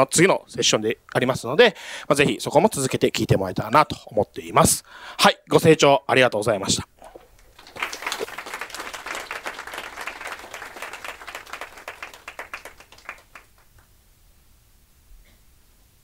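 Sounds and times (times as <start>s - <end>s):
audience applauding: 7.3s - 13.9s.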